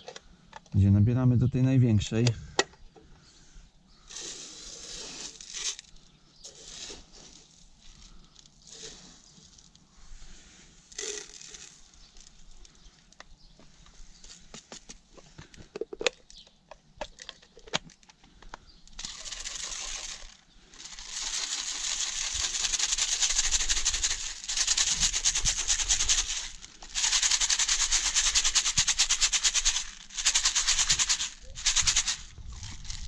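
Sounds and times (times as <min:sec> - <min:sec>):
granules rattling in sieve: 0:04.1 - 0:09.8, 0:10.9 - 0:12.8, 0:19.0 - 0:33.0
handling clicks and knocks: 0:14.6 - 0:19.1.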